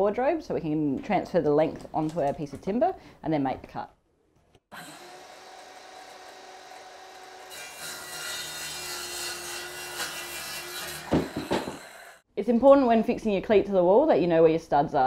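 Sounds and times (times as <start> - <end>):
circular saw cutting wood: 4.7 - 12.2
knocks on wood: 11.1 - 11.8.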